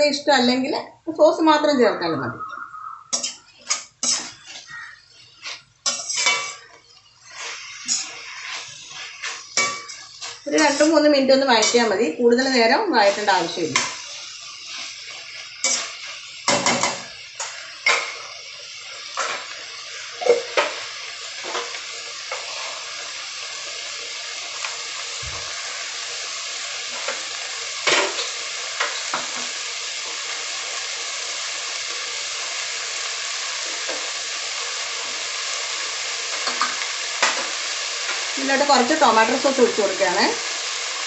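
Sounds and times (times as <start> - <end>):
vegetables sizzling in a pan: 0.0 - 41.0
spoon scraping a pan: 3.1 - 12.1, 13.1 - 18.4, 19.0 - 23.1.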